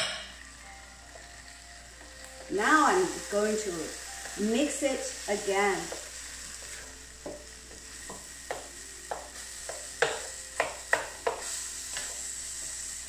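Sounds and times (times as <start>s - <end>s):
stir-fry sizzling in a wok: 0.0s - 13.0s
wooden spatula knocking on pan: 5.8s - 6.1s, 7.2s - 11.5s.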